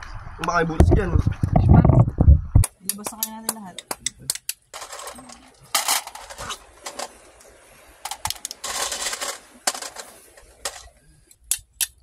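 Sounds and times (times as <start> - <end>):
hard objects clicking and knocking: 8.1 - 12.0.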